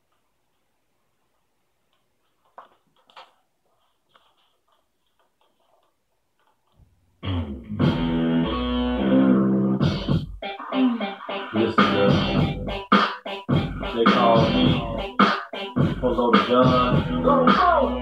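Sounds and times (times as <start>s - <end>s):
guitar music: 7.2s - 15.7s.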